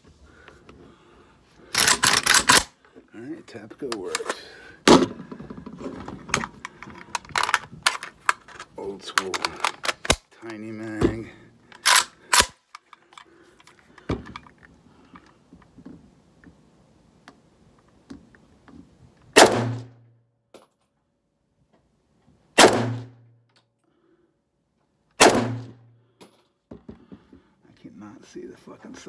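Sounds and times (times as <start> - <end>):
metal magazine clacks: 1.7 - 2.8, 3.8 - 4.4, 6.3 - 10.7, 11.7 - 14.6
rifle shots: 1.8 - 2.7, 19.4 - 19.9, 22.6 - 23.2, 25.2 - 25.8.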